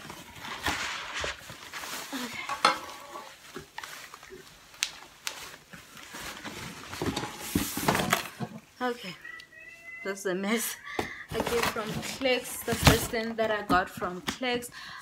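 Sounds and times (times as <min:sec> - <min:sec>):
cardboard rustling and scraping: 0:00.0 - 0:04.2, 0:05.3 - 0:08.5, 0:11.3 - 0:14.2.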